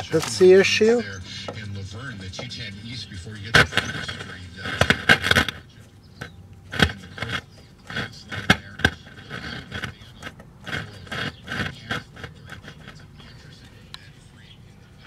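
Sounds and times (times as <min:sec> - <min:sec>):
tinny broadcast from speaker: 0:00.0 - 0:15.0
sharp clicks and crackles: 0:03.5 - 0:14.1.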